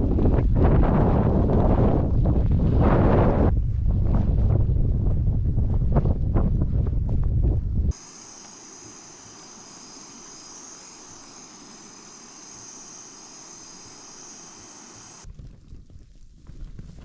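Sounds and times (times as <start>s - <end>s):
steady hiss: 7.9s - 15.3s.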